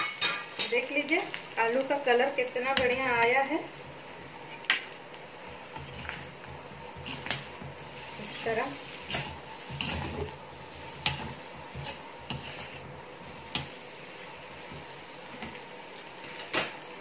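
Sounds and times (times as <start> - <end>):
potatoes sizzling in oil: 0.0 - 17.0
metal spatula scraping pan: 7.0 - 13.8.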